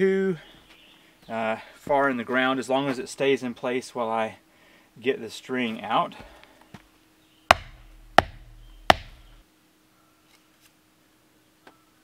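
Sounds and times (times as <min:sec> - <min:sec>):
wooden stake being struck: 0:07.5 - 0:09.4.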